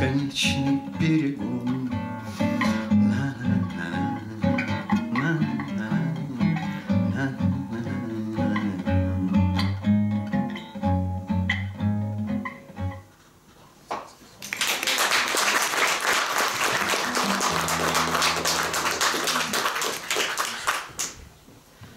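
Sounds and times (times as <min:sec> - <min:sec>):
classical guitar playing: 0:00.0 - 0:13.1, 0:16.7 - 0:19.8
audience applause: 0:14.4 - 0:21.2.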